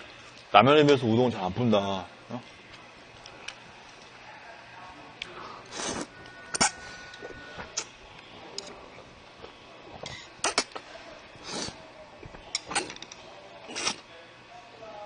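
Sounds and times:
person slurping noodles: 5.6s - 7.4s, 11.4s - 11.8s, 13.7s - 14.0s.

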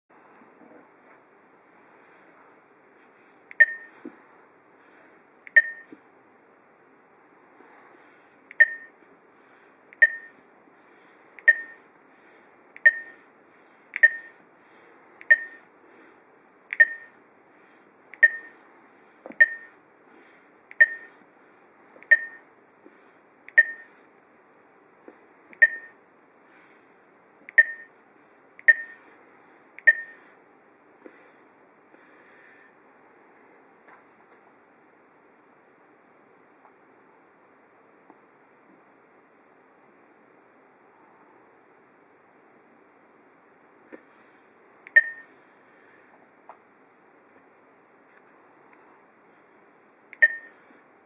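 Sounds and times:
short high touchscreen beeps: 3.6s - 3.9s, 5.6s - 5.9s, 8.6s - 9.0s, 10.0s - 10.4s, 11.5s - 11.8s, 12.8s - 13.2s, 14.0s - 14.4s, 15.3s - 15.7s, 16.7s - 17.2s, 18.2s - 18.6s, 19.4s - 19.8s, 20.8s - 21.1s, 22.1s - 22.4s, 23.6s - 23.9s, 25.6s - 26.0s, 27.6s - 27.9s, 28.7s - 29.0s, 29.9s - 30.2s, 45.0s - 45.3s, 50.2s - 50.6s.

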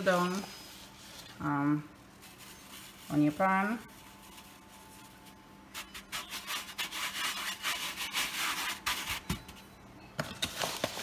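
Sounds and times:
hand scraping cornmeal on metal sheet: 5.7s - 9.2s.

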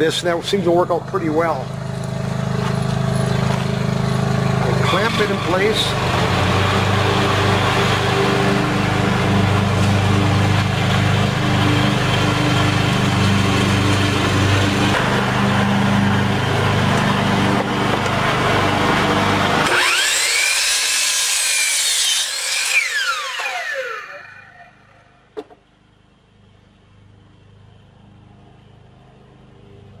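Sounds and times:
low hum: 0.0s - 20.0s
miter saw cutting wood: 0.0s - 25.1s
saw motor whine: 0.8s - 25.2s.

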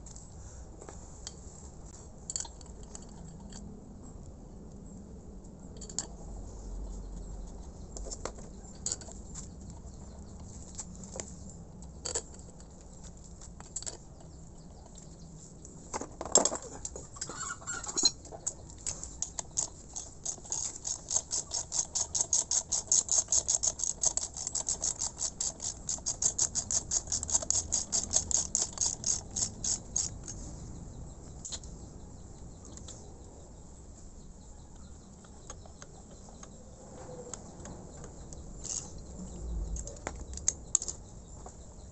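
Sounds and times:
metal tools clattering: 16.1s - 18.4s
ratchet wrench clicking: 19.2s - 30.1s.

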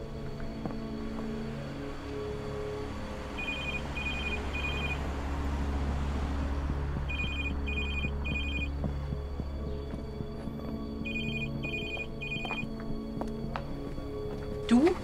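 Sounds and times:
phone ringtone trilling beeps: 3.4s - 5.0s, 7.1s - 8.7s, 11.0s - 12.7s.

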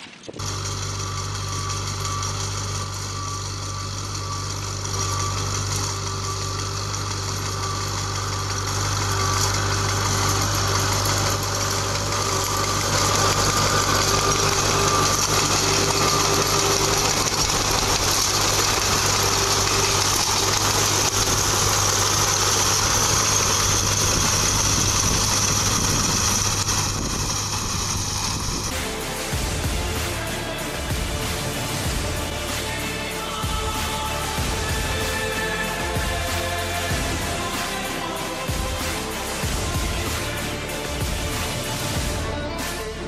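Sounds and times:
baler baling hay: 0.0s - 43.0s
tractor engine running: 0.0s - 43.0s.

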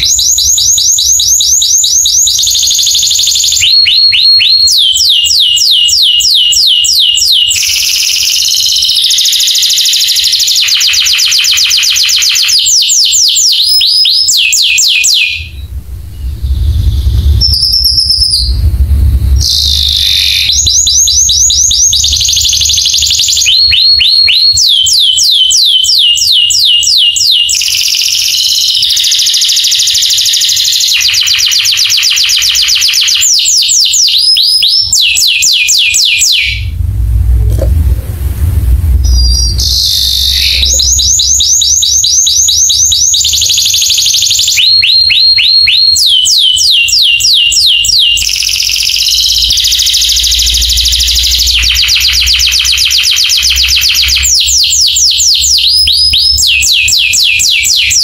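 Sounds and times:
canary singing trills: 0.0s - 18.8s, 19.4s - 36.9s, 39.0s - 58.0s
low rumble: 15.4s - 23.6s, 36.2s - 42.0s.

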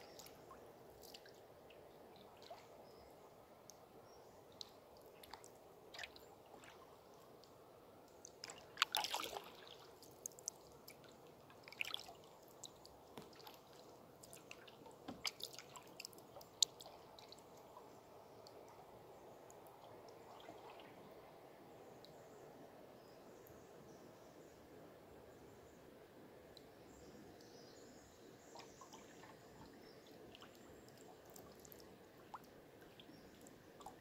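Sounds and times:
water drips and small splashes: 0.0s - 22.3s, 26.5s - 34.0s
flowing river water: 0.0s - 22.9s, 23.6s - 34.0s.

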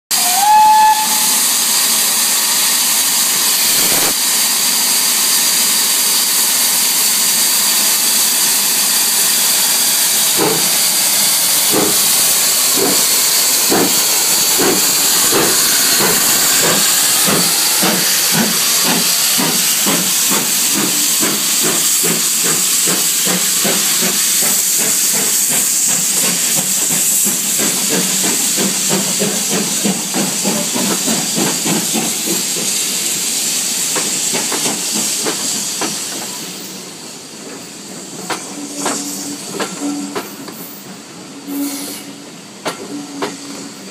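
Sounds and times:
steam locomotive whistle: 0.1s - 5.6s, 41.4s - 43.8s
steam hissing: 0.1s - 43.9s
steam locomotive exhaust beats: 0.1s - 43.9s.

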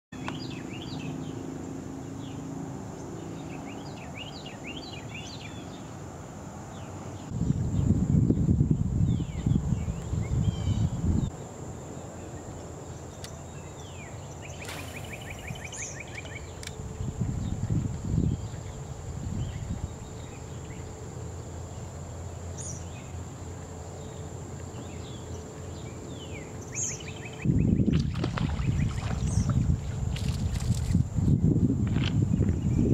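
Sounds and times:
birds chirping and trilling: 0.2s - 6.0s, 9.0s - 11.3s, 12.0s - 23.3s, 24.0s - 30.0s
wind buffeting microphone: 7.2s - 11.3s, 14.6s - 20.6s, 27.3s - 32.9s.

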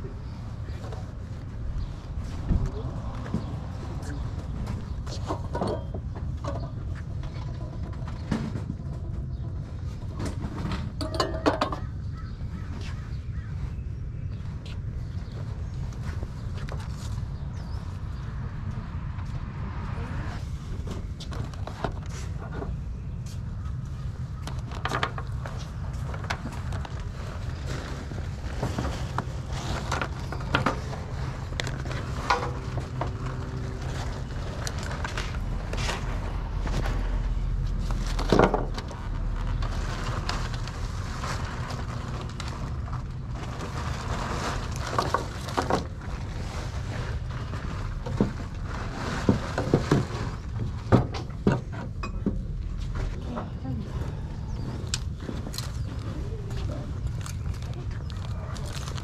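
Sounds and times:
steady low rumble: 0.0s - 59.0s
items knocking and clattering: 4.7s - 12.0s.

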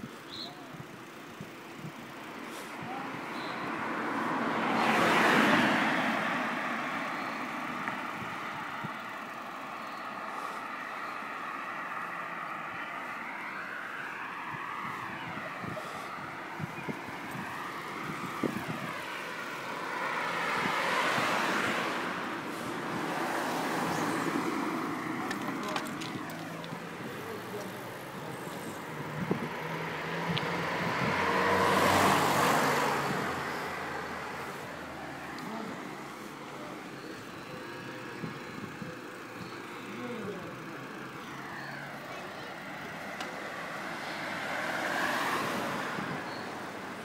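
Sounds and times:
road traffic noise: 0.0s - 47.0s
car passing: 2.1s - 47.0s
bicycle rattling: 25.2s - 28.6s.

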